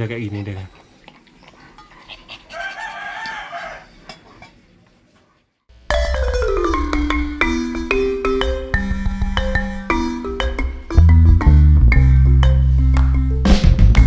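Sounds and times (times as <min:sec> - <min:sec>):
mallet percussion music: 0:05.8 - 0:14.0.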